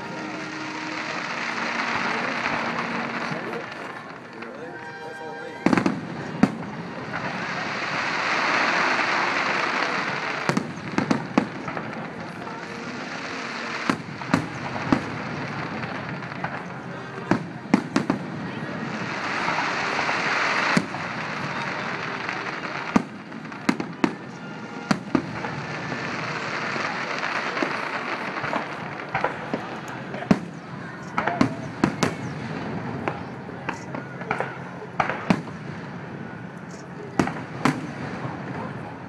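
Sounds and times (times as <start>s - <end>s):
fireworks bursting in bangs: 0.0s - 39.0s
steady hiss: 5.8s - 17.9s.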